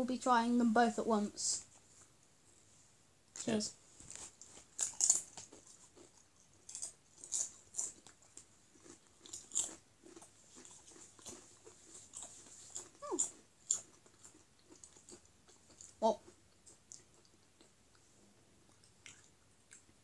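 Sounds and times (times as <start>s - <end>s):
chips crunching while chewed: 4.5s - 17.8s.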